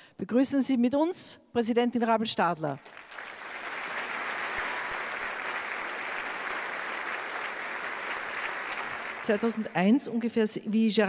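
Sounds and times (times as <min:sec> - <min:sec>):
audience applauding: 0:02.8 - 0:09.9.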